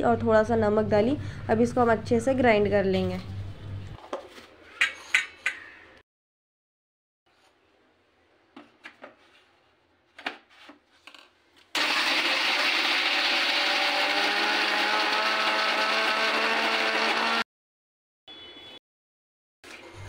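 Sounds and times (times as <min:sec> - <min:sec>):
mixer grinder motor running: 0:11.8 - 0:17.4.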